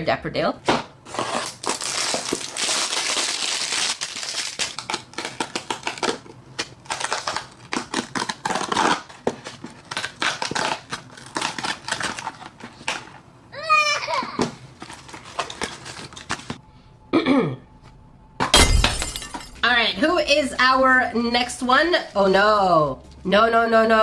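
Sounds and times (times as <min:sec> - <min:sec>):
cardboard tear strip ripping: 0:01.1 - 0:12.5.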